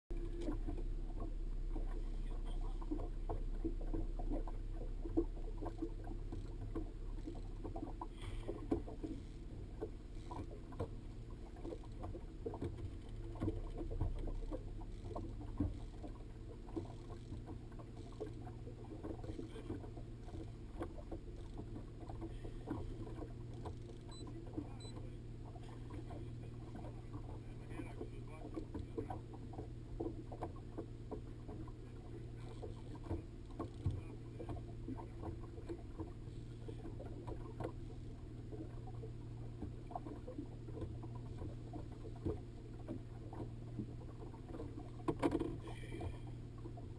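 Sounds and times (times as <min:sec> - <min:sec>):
boat engine rumble: 0:00.1 - 0:46.9
water slapping against hull: 0:00.1 - 0:46.9.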